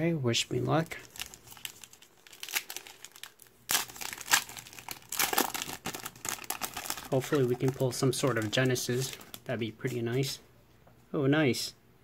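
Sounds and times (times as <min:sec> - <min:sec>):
foil wrapper crinkling and tearing: 0:00.8 - 0:09.5.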